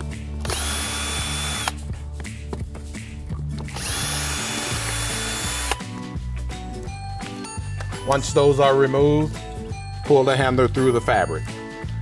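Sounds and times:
power drill whining: 0.4s - 1.8s, 3.8s - 5.8s.

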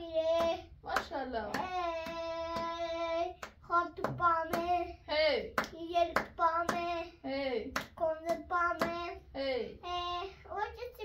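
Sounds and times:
hands clapping a steady beat: 0.4s - 4.8s, 5.6s - 7.0s, 7.7s - 9.1s.

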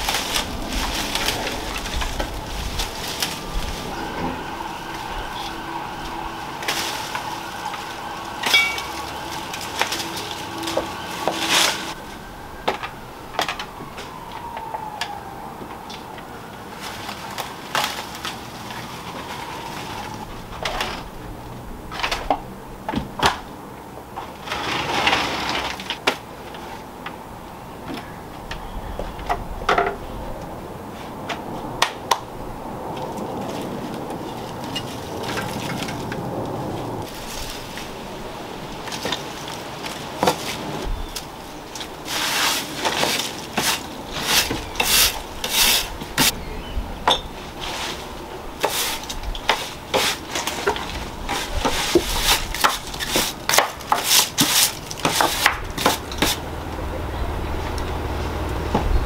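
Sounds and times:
ivy stems snapping: 0.0s - 4.0s
leaves rustling: 0.0s - 22.8s, 23.4s - 59.0s.

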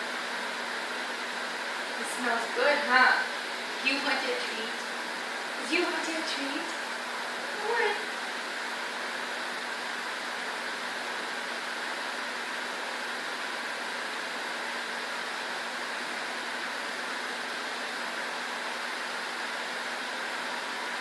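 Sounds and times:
faint hum: 0.0s - 12.0s.

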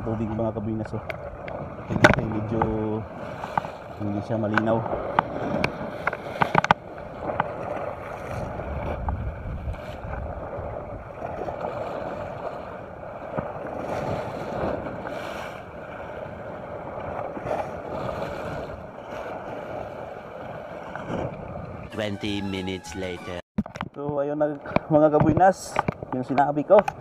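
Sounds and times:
wind on microphone: 0.0s - 24.0s
sea waves splashing on rocks: 1.0s - 21.4s.

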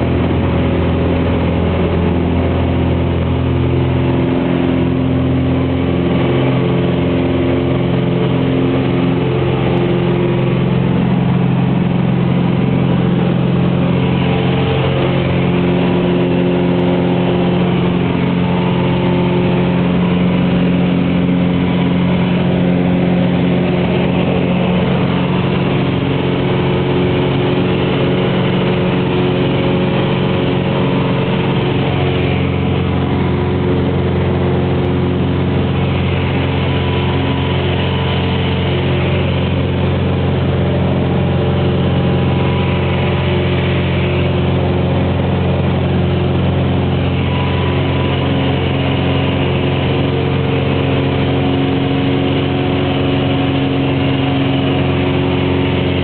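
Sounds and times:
propeller plane engine droning: 0.0s - 56.0s.

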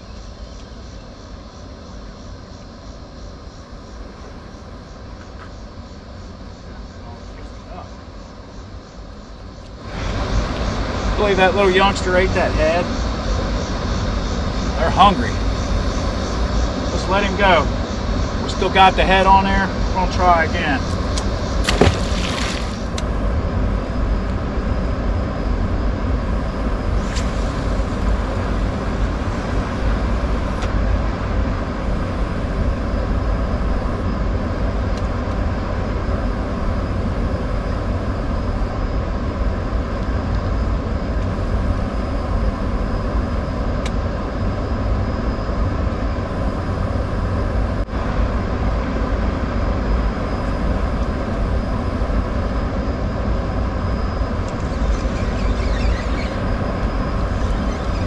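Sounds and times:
steady low rumble: 0.0s - 58.0s
fish splashing into water: 21.6s - 23.0s.

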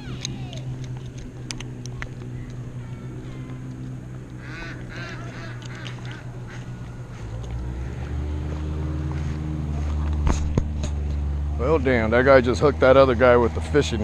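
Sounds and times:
low engine hum: 0.0s - 14.0s
honking waterfowl calls: 4.4s - 8.0s.

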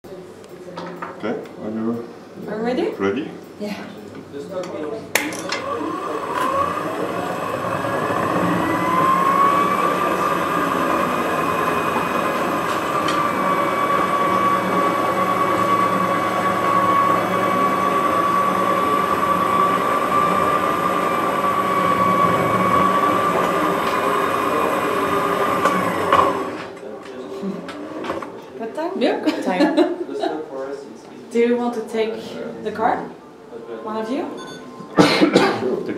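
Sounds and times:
mechanical whir with whining tone: 5.5s - 26.8s.

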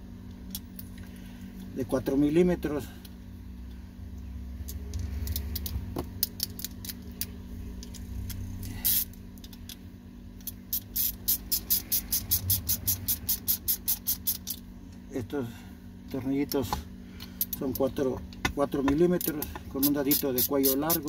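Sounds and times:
steady low hum: 0.0s - 21.0s
tools handled with clicks: 4.6s - 9.8s
ratchet wrench clicking: 7.8s - 9.8s, 10.4s - 14.6s, 19.1s - 21.0s.

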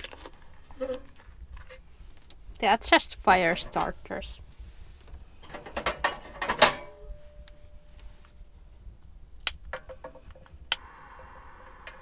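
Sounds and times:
metal door clank: 5.4s - 7.0s
stove door scraping and rattling: 5.4s - 7.0s.

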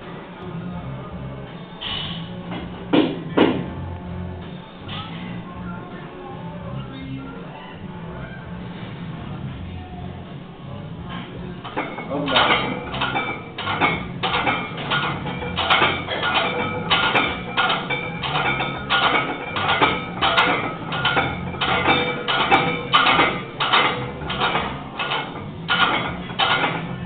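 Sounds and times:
weight plates clanking on barbell: 11.6s - 27.0s.

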